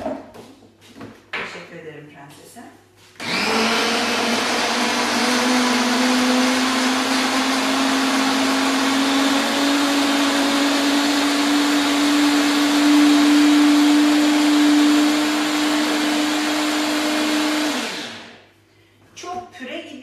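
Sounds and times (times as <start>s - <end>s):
electric chopper motor running: 3.2s - 18.3s.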